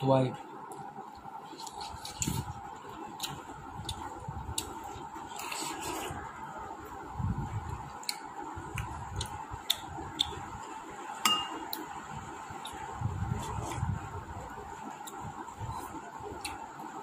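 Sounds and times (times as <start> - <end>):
ringing spoon clink: 11.2 - 11.6
spoons tapping and scraping bowls: 11.2 - 11.7.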